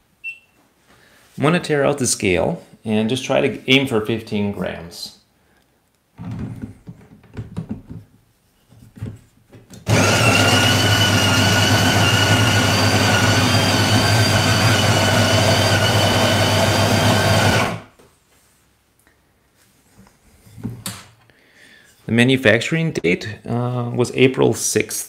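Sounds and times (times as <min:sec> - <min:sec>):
coffee grinder motor whine: 0:09.9 - 0:17.9.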